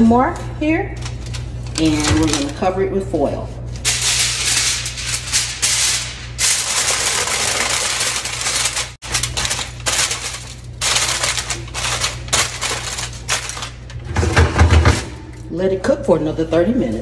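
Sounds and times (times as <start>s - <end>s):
aluminium foil crinkling: 1.0s - 2.7s, 3.7s - 14.0s.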